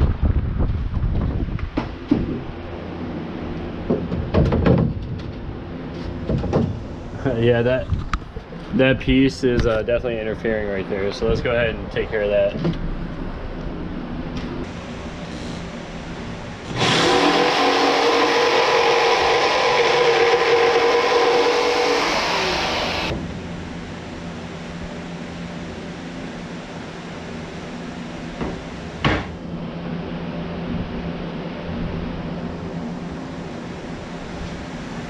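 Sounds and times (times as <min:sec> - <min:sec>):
jigsaw cutting plywood: 0:16.7 - 0:23.1.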